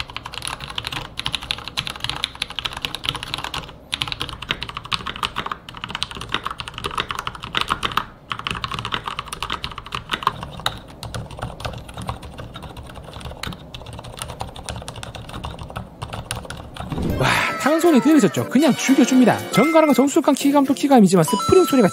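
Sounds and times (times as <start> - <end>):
mechanical keyboard typing: 0.0 - 16.9.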